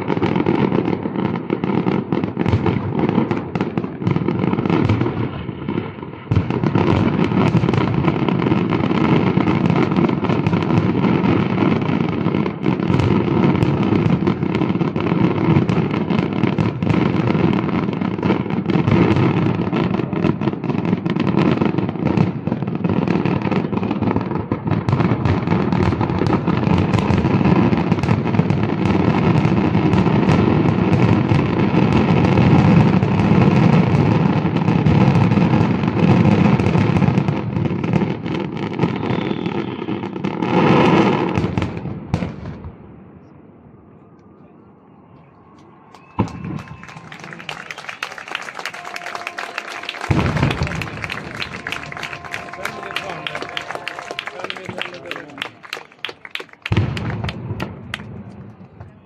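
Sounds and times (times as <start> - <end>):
fireworks bursting and crackling: 0.0 - 42.7, 45.9 - 59.0.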